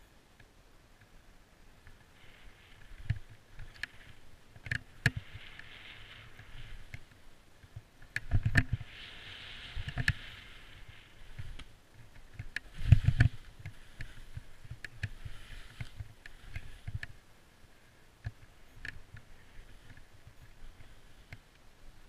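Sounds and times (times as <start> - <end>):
skis hissing over snow: 5.2 - 7.0, 8.8 - 11.8, 12.6 - 16.9.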